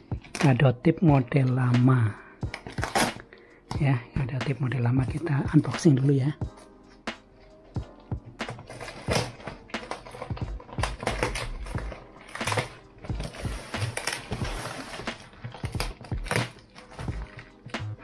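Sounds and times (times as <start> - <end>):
plastic wrap crinkling: 8.5 - 17.8.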